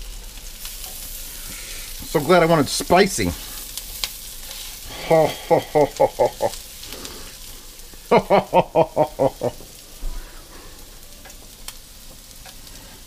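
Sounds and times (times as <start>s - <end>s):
food sizzling in a pan: 0.0s - 13.0s
person's short vocal bursts: 4.9s - 6.1s.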